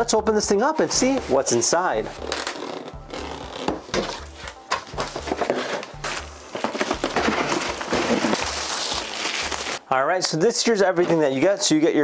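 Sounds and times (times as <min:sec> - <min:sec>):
cardboard box packaging rustling: 0:00.8 - 0:09.8.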